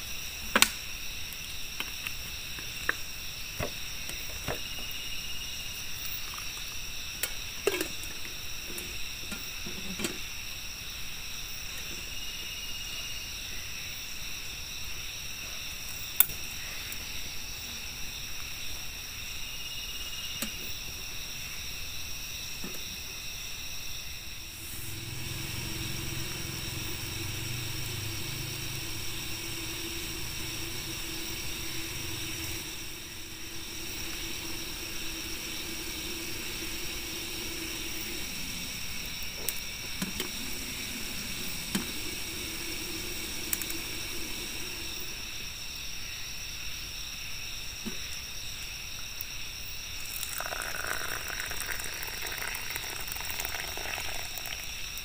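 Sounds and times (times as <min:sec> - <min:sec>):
crickets and insects chirring: 0:00.0 - 0:55.0
rough hiss: 0:19.8 - 0:46.0, 0:49.8 - 0:55.0
low hum: 0:24.4 - 0:45.4.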